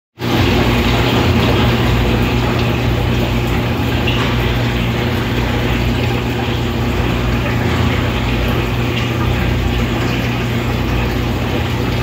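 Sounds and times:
aquarium water pump humming: 0:00.2 - 0:12.0
water running: 0:00.2 - 0:12.0.

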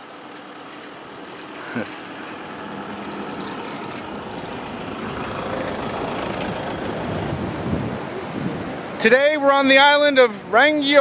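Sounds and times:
car driving past: 0:01.6 - 0:08.9.

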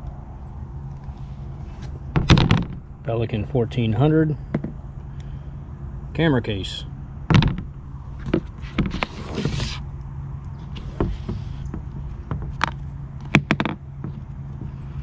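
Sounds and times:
case scraping on table: 0:08.2 - 0:09.8, 0:10.6 - 0:12.6
plastic case knocks and clicks: 0:11.7 - 0:14.2.

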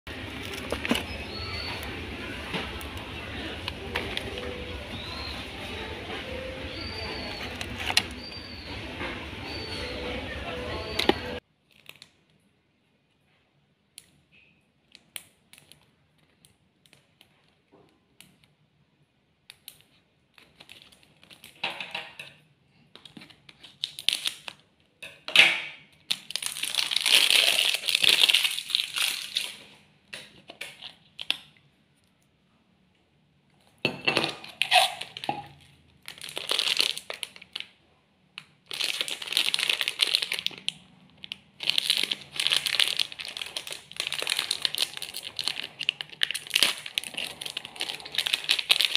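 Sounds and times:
plastic packaging crinkling: 0:00.1 - 0:01.9, 0:19.8 - 0:21.6, 0:23.0 - 0:24.6, 0:26.0 - 0:29.8, 0:34.6 - 0:37.8, 0:38.4 - 0:48.9.

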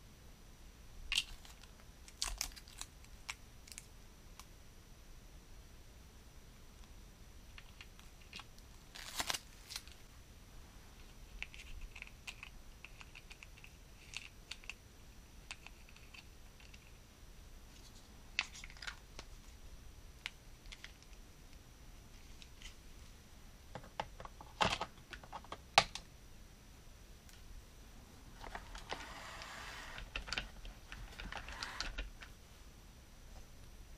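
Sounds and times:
plastic toy parts clicking: 0:30.0 - 0:32.3.

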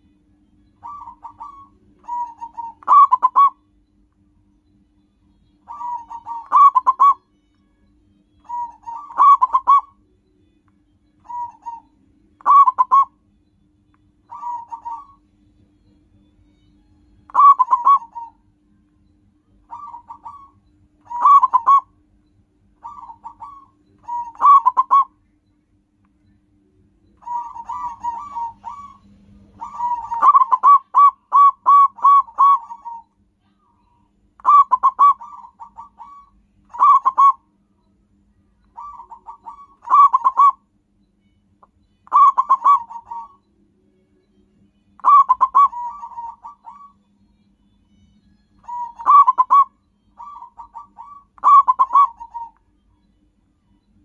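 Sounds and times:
dove cooing: 0:00.8 - 0:03.6, 0:05.7 - 0:07.2, 0:08.4 - 0:10.0, 0:11.2 - 0:13.2, 0:14.3 - 0:15.2, 0:17.3 - 0:18.4, 0:19.7 - 0:21.9, 0:22.8 - 0:25.1, 0:27.2 - 0:29.0, 0:29.6 - 0:33.1, 0:34.4 - 0:37.4, 0:38.7 - 0:40.6, 0:42.0 - 0:43.4, 0:45.0 - 0:47.0, 0:48.6 - 0:52.6.

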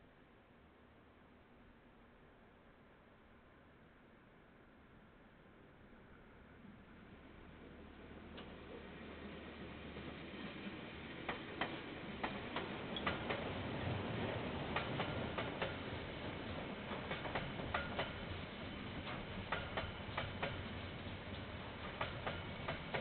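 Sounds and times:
train low rumble: 0:04.3 - 0:23.0
train wheels clicking over rail joint: 0:11.3 - 0:13.5, 0:14.7 - 0:15.9, 0:16.9 - 0:20.7, 0:21.3 - 0:23.0.

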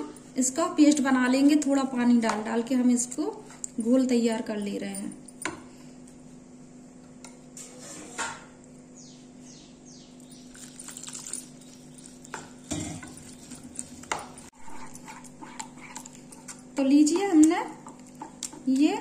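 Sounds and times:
spoon stirring batter: 0:10.4 - 0:19.0.

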